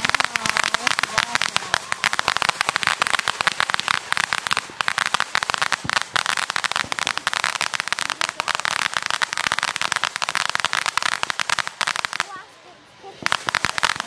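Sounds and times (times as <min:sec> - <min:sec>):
firework fountain crackling: 0:00.0 - 0:14.0.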